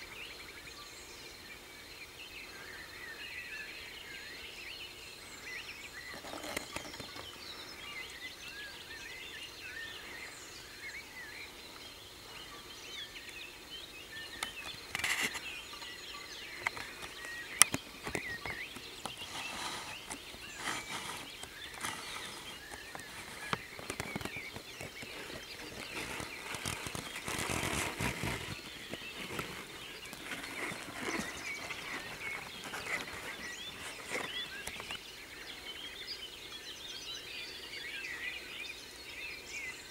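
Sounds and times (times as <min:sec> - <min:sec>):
rustling: 0:06.0 - 0:07.6, 0:14.4 - 0:35.0
sharp clicks and crunches: 0:06.1 - 0:07.4, 0:14.4 - 0:15.5, 0:16.6 - 0:35.0.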